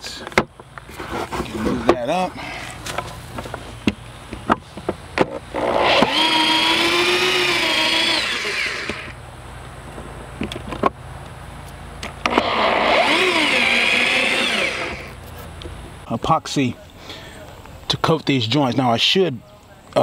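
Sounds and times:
electric drill whining: 0:05.5 - 0:09.2, 0:12.3 - 0:15.2.

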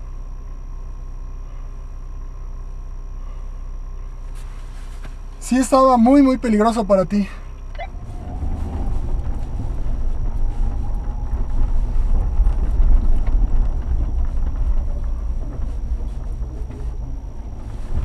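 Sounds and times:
engine and tyres rumbling: 0:00.0 - 0:18.0
wind buffeting microphone: 0:07.8 - 0:18.0.

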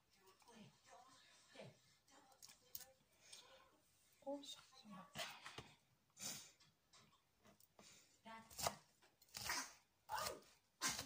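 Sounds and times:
knife chopping on plastic board: 0:08.5 - 0:11.0.

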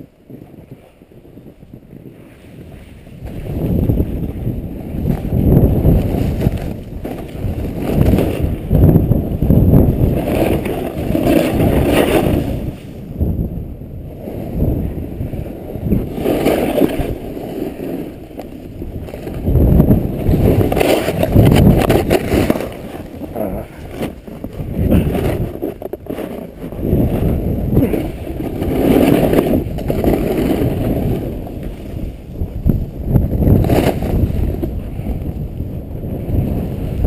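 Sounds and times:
wind rushing over microphone: 0:00.0 - 0:37.0
snowboard sliding through powder: 0:00.2 - 0:37.0.

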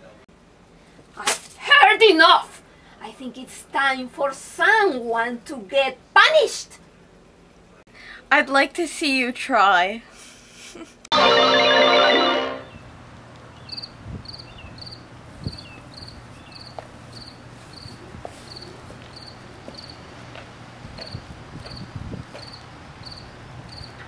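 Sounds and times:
cricket chirping: 0:18.5 - 0:20.0, 0:21.0 - 0:24.0.

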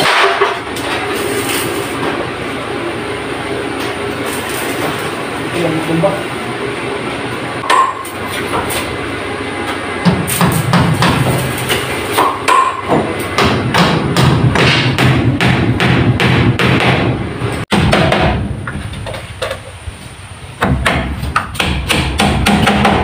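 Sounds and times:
steady low hum: 0:00.0 - 0:23.0
hammer nailing into wood: 0:10.1 - 0:11.4, 0:12.2 - 0:17.1, 0:17.7 - 0:18.4, 0:20.6 - 0:23.0.

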